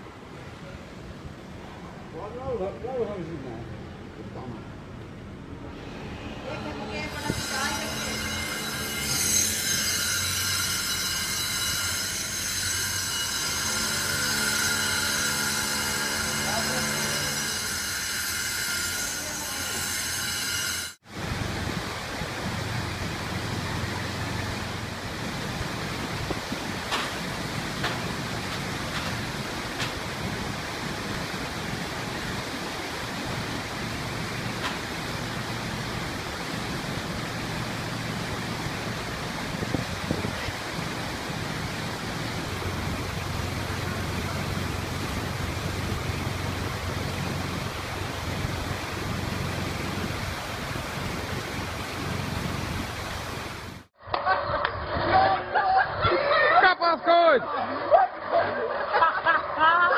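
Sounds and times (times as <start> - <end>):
constant hiss: 21.0 - 53.9
bulldozer diesel engine rumble: 33.6 - 53.7.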